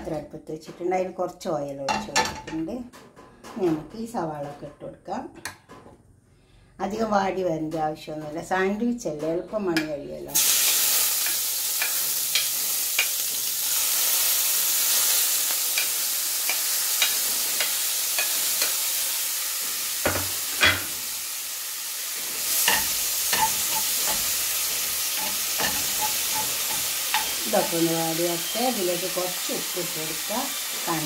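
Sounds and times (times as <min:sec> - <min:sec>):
vegetables sizzling in hot oil: 0:10.3 - 0:31.0
metal spoon scraping pan: 0:22.4 - 0:28.6.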